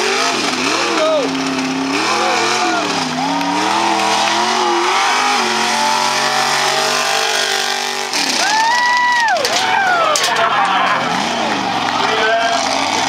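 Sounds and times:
truck engine revving: 0.0s - 13.0s.

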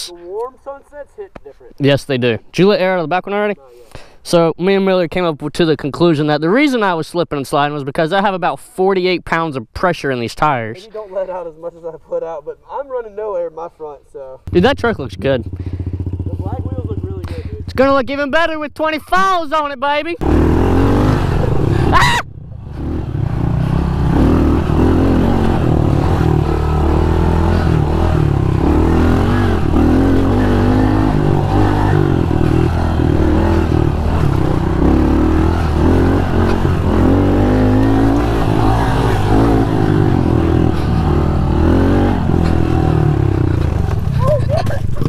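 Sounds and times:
motorbike engine revving: 14.5s - 17.8s, 20.2s - 45.0s.

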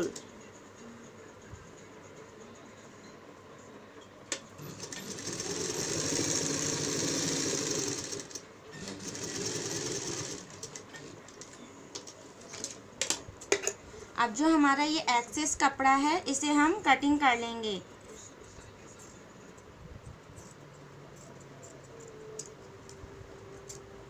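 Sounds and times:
sewing machine stitching: 4.6s - 11.4s.

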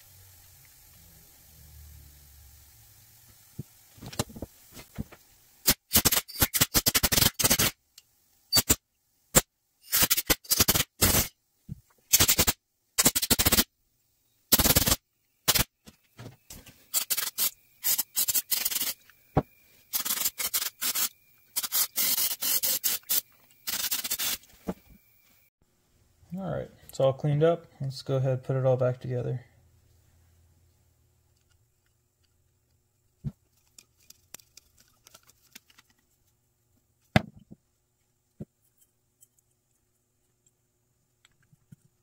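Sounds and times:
aerosol can spraying: 5.6s - 7.8s, 9.9s - 11.3s, 12.1s - 13.7s, 14.5s - 15.7s, 16.9s - 19.0s, 19.9s - 24.5s
compressed air blow gun hissing: 14.5s - 15.7s, 16.8s - 24.8s.

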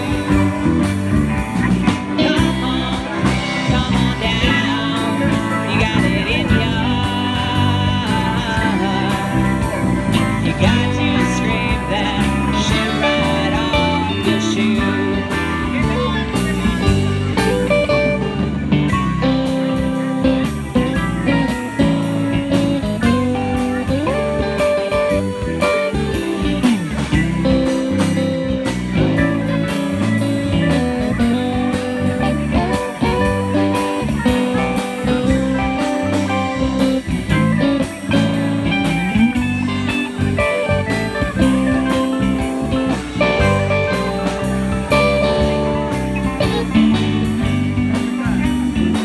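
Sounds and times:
live rock band playing: 0.0s - 49.0s
steady drum beat: 0.0s - 49.0s.

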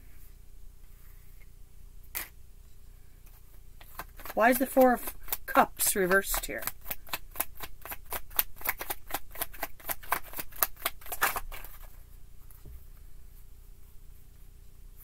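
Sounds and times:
cards being shuffled: 3.3s - 12.0s.

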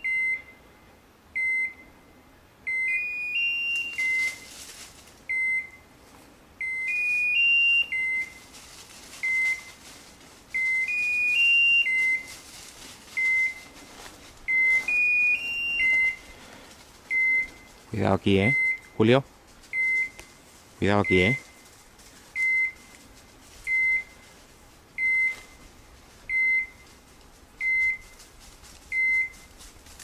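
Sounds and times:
short high beeps: 0.0s - 0.6s, 2.7s - 4.5s, 6.6s - 8.4s, 10.6s - 12.3s, 13.2s - 13.7s, 14.5s - 16.2s, 17.1s - 17.7s, 18.4s - 19.0s, 19.7s - 20.2s, 22.4s - 22.9s, 23.7s - 24.2s, 26.3s - 26.8s, 29.0s - 29.5s.

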